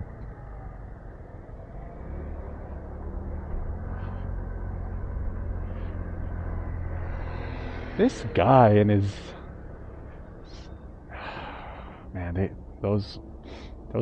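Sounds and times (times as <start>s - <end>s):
road rumble: 0.0s - 14.0s.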